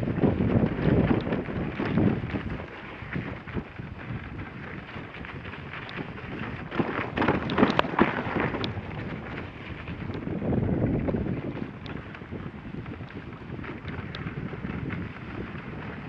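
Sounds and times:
sled runners scraping snow: 0.0 - 16.0
wind on microphone: 0.0 - 16.0
sharp crunches and clicks: 6.7 - 9.1.

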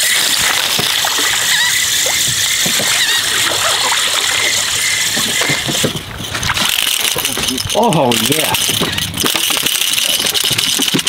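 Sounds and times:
fish splashing water: 0.0 - 8.0.

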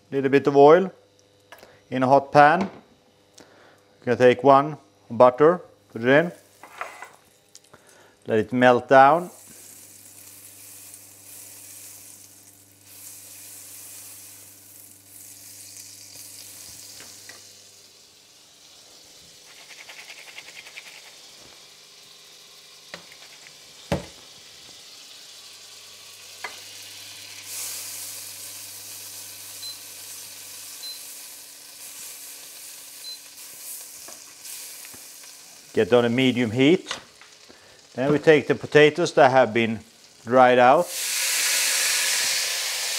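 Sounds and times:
butter sizzling in frying pan: 9.2 - 42.9.

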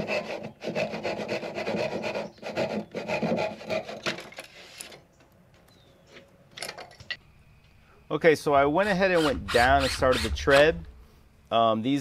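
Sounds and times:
handsaw sawing wood: 0.0 - 4.2, 8.8 - 10.8.

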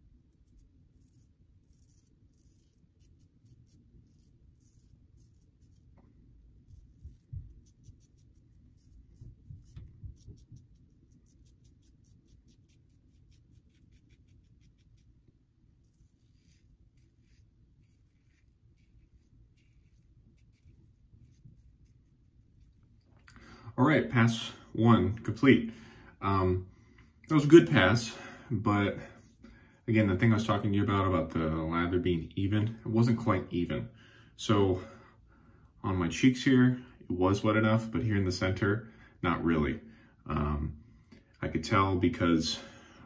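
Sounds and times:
low steady hum: 0.0 - 43.0
razor scraping stubble: 0.3 - 23.0
dull low thumps: 9.1 - 10.8.

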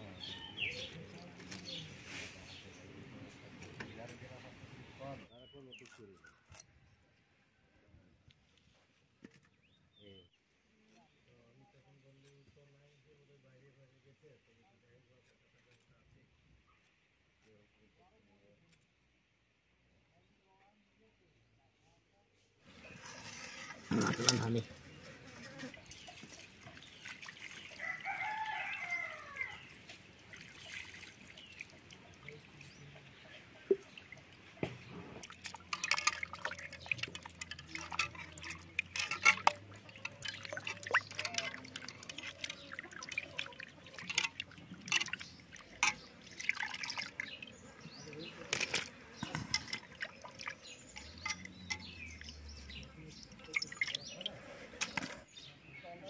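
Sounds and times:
fish pieces washed in water: 25.7 - 55.2
rooster crowing: 27.8 - 29.6.

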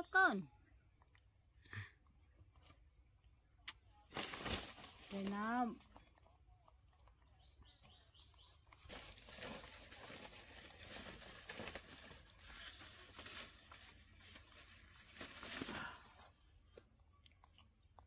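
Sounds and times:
faint chirps: 0.0 - 18.0
soft crackling and rustling: 8.4 - 15.8.

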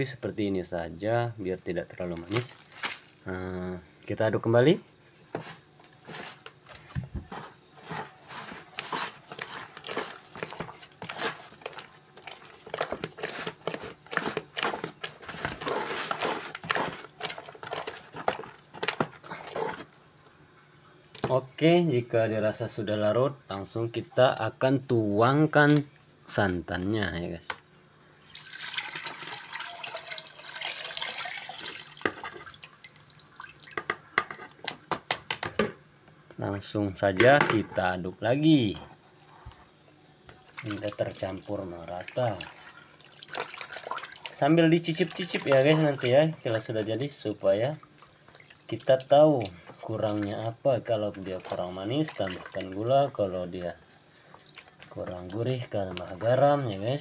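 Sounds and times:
wooden spoon stirring thick batter: 5.3 - 19.9, 40.3 - 47.5, 48.3 - 53.8
liquid pouring and splashing: 28.2 - 33.8, 40.5 - 46.6, 47.7 - 55.3.

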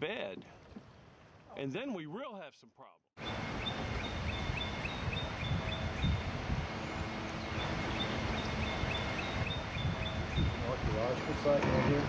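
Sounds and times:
bird chirping: 3.2 - 11.7.

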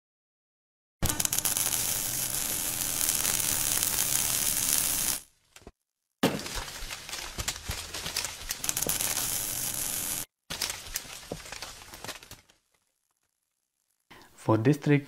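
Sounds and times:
crackling sizzling fire-like noise: 1.0 - 5.4, 6.5 - 15.0
scattered clicks: 8.2 - 10.8.

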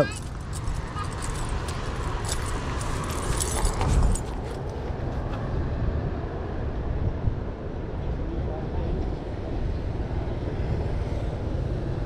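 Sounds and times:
metallic clicks and jingles: 0.0 - 4.8
road traffic: 0.0 - 12.0
wind rumble: 0.0 - 12.0.

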